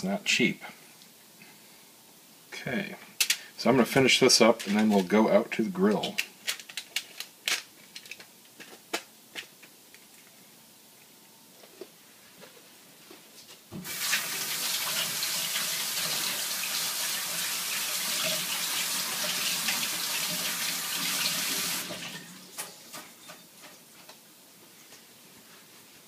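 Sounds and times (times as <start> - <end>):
kitchen tap running: 13.8 - 23.0.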